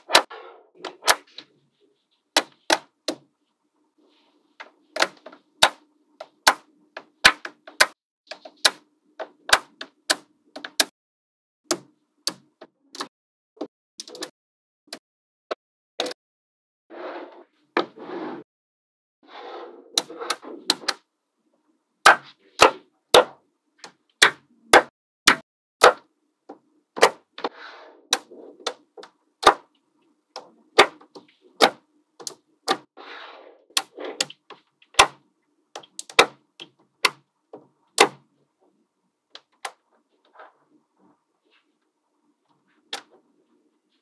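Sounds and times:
balls scraping rattle: 19.2s - 21.0s.

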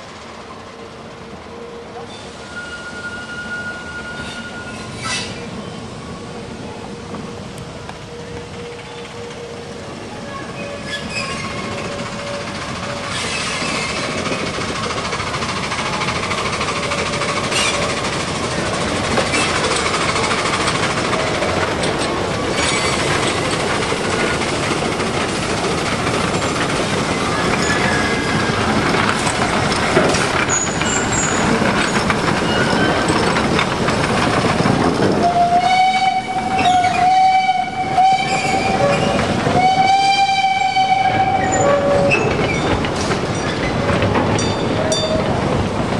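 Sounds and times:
steam locomotive running: 0.0s - 45.9s
steam whistle blasts: 1.6s - 5.4s, 35.2s - 42.3s.

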